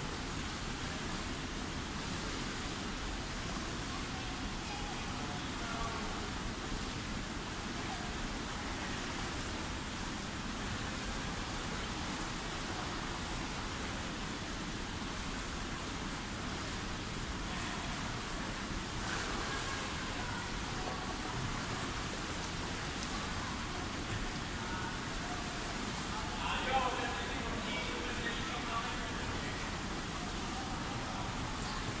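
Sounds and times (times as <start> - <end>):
swimmers splashing in pool: 17.6 - 32.0.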